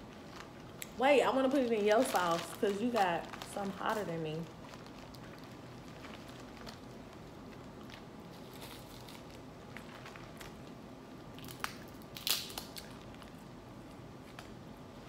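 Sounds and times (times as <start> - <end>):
crawfish shells cracking: 3.3 - 14.6.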